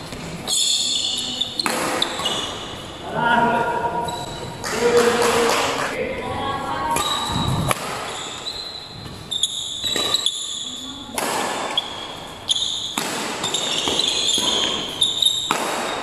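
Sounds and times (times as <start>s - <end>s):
shoes squeaking on court: 0.0s - 3.0s, 4.0s - 4.8s, 6.8s - 16.0s
racquets smacking shuttlecock: 1.6s - 2.8s, 6.9s - 16.0s.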